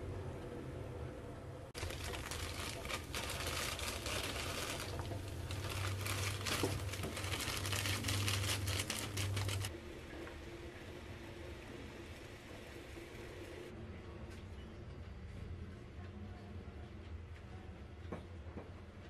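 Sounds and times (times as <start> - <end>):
noodles shaken into pot: 1.8 - 9.7
plastic packet crinkling: 1.8 - 9.7.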